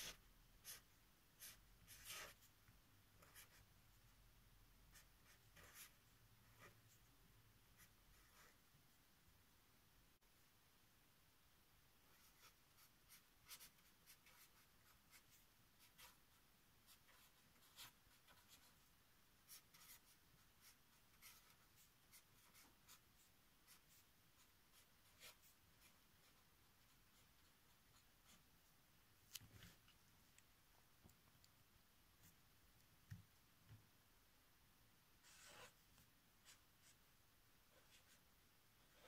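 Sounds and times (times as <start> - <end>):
marker pen scratching on paper: 0.0 - 3.7, 4.9 - 7.1, 7.7 - 8.6, 12.0 - 28.5, 35.2 - 37.0, 37.7 - 39.0.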